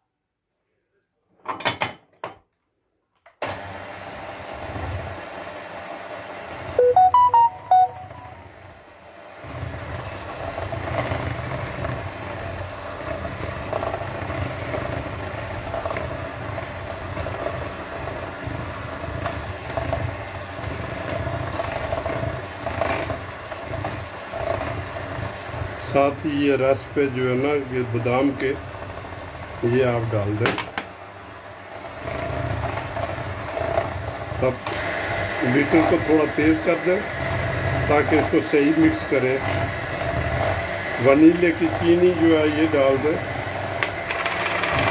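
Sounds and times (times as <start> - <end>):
electric hand mixer running: 3.4 - 7.0, 8.0 - 44.9
loud clear tones: 6.8 - 8.5.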